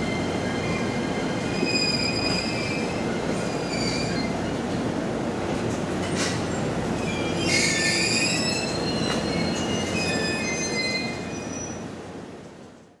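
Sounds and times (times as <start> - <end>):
train wheels squealing: 0.0 - 4.6, 7.0 - 11.9
train rumble: 0.0 - 12.9.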